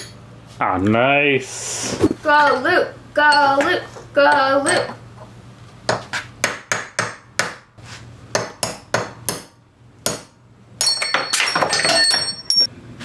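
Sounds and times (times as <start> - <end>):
hammer striking metal punch: 5.9 - 7.7, 8.3 - 12.4
ringing metallic clatter: 10.8 - 12.7.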